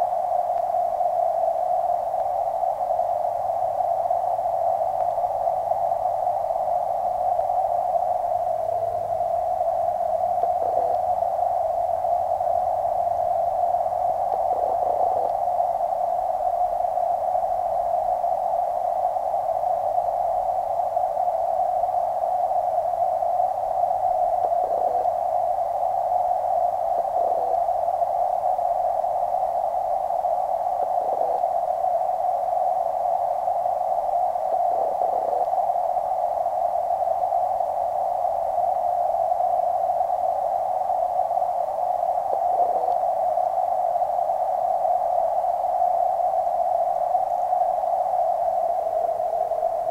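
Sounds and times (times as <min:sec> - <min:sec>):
faint soft sounds: 0:00.0 - 0:49.9
muffled underwater hiss: 0:00.0 - 0:49.9.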